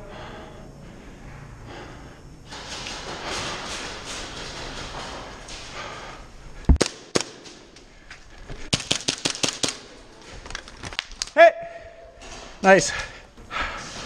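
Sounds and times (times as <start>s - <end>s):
airsoft gun shots: 6.7s - 7.6s.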